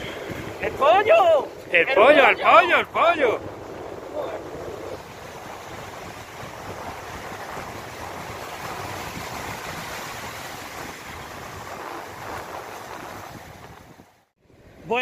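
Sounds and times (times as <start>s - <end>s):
surf breaking on shore: 0.0s - 15.0s
wind rumbling on microphone: 0.0s - 15.0s.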